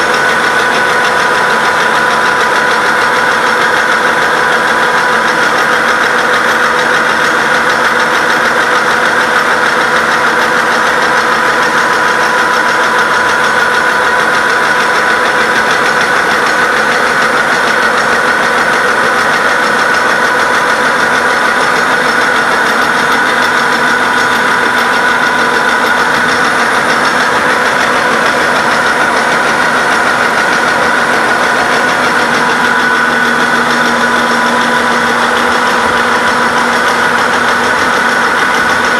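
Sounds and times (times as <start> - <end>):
milling machine cutting steel: 0.0 - 38.9.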